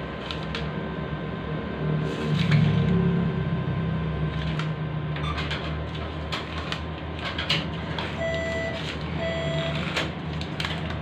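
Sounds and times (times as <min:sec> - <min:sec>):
low machine hum: 0:00.0 - 0:11.0
atm beeps: 0:08.0 - 0:10.1.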